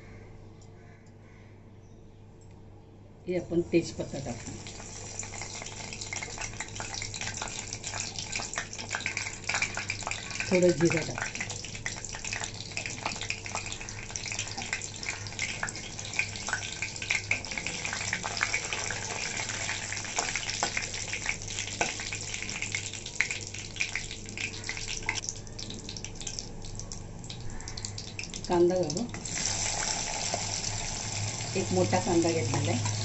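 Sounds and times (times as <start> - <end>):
spices sizzling in hot oil: 3.8 - 33.0.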